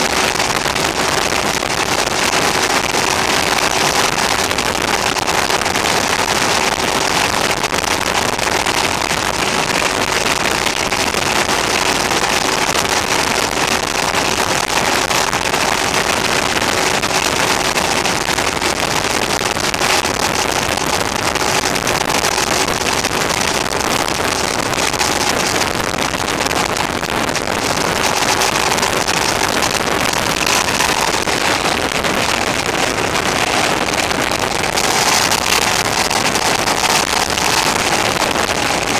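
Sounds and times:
wind rushing over microphone: 0:22.1 - 0:38.9.

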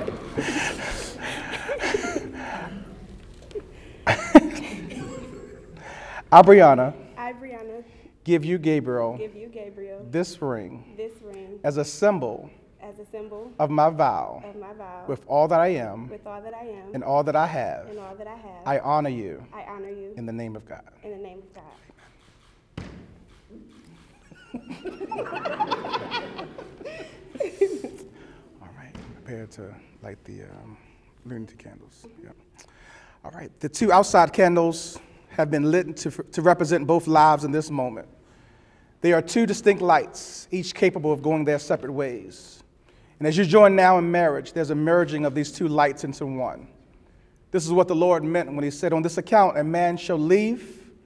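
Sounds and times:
person laughing or coughing: 0:00.4 - 0:02.8, 0:04.0 - 0:05.9, 0:24.3 - 0:28.3
soft laughter: 0:24.2 - 0:28.2.

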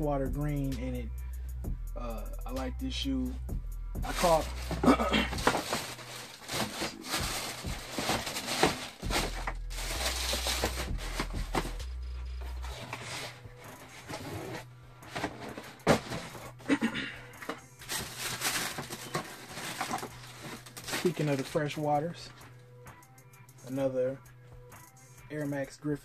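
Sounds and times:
tissue paper rustling: 0:04.0 - 0:16.6, 0:17.4 - 0:21.6
cardboard boxes knocking: 0:04.1 - 0:06.0, 0:15.1 - 0:16.5.

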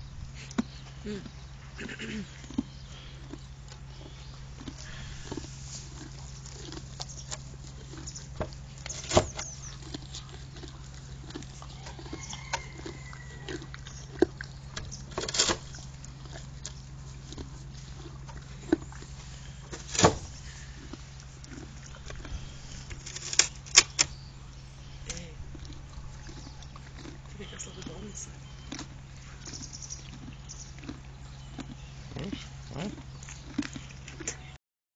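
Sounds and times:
donkey teeth scraping wood: 0:04.8 - 0:24.2
sharp cracks of wood: 0:19.8 - 0:20.3, 0:22.9 - 0:24.1.

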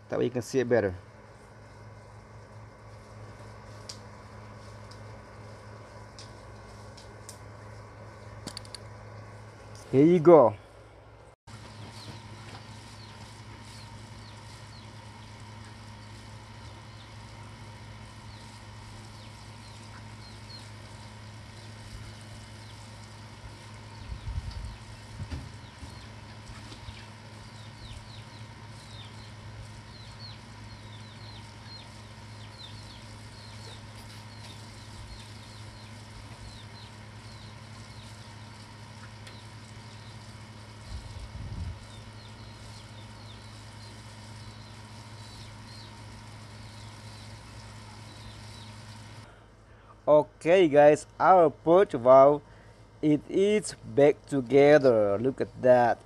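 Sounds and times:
steady low hum: 0:00.0 - 0:56.0
birds chirping: 0:11.6 - 0:49.3.

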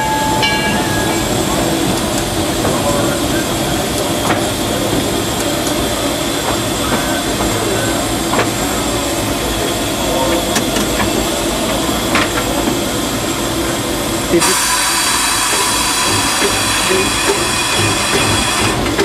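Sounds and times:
steam locomotive rumble and rattle: 0:00.0 - 0:19.0
wheels clicking on track: 0:00.0 - 0:19.0.

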